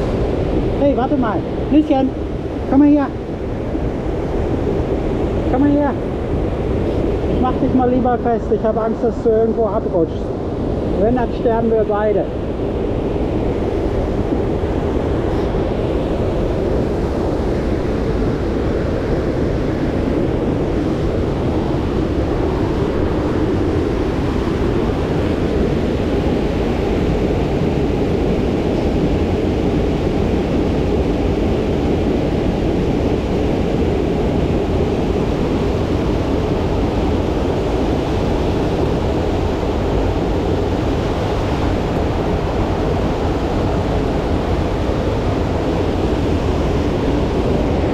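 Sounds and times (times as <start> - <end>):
water rushing: 0.0 - 47.9.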